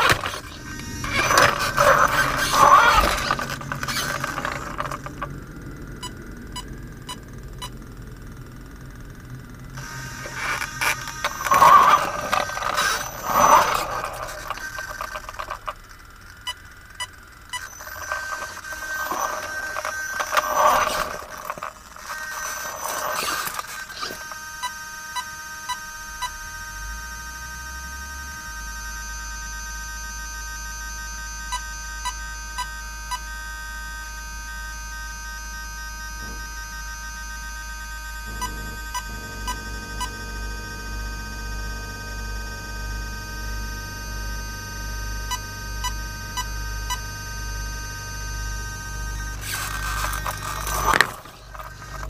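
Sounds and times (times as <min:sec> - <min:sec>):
scraping on gravel: 0:00.0 - 0:05.3, 0:09.9 - 0:15.8, 0:17.6 - 0:24.3, 0:49.4 - 0:52.0
rover motor whine: 0:00.0 - 0:52.0.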